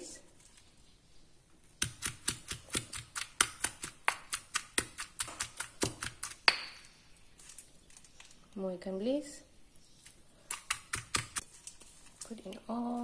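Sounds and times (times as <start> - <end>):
stone pestle pounding in mortar: 1.8 - 6.8, 10.5 - 11.4.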